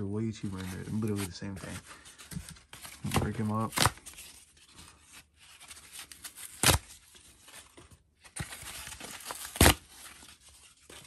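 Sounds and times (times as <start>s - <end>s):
cardboard tearing and rustling: 0.4s - 11.0s
loud cardboard crack: 2.3s - 4.3s, 6.1s - 7.0s, 7.6s - 11.0s.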